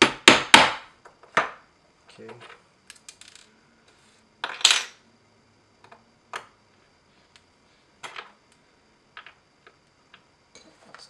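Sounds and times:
metal tools clinking on wood: 0:04.4 - 0:05.0.

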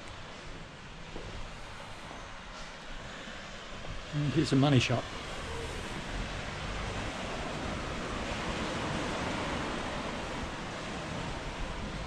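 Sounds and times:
surf washing onto beach: 0:04.0 - 0:12.0.

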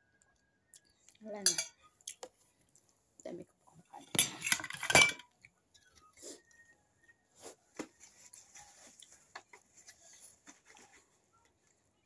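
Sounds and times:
paper tissue rustling: 0:07.4 - 0:11.4.

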